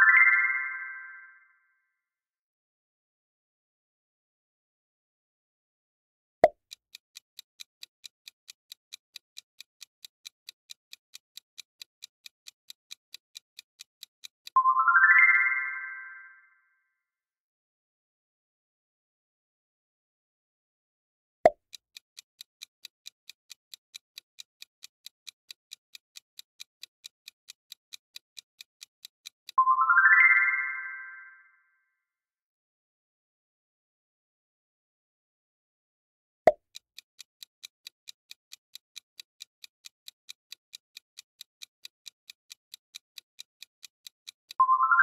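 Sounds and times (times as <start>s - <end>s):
clock-like ticking: 6.4s - 14.6s, 21.5s - 29.6s, 36.5s - 44.8s.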